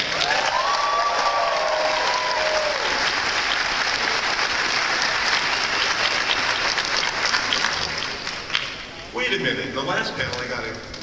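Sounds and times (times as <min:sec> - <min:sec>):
long held cheers: 0:00.0 - 0:03.2
audience applauding: 0:00.0 - 0:09.0.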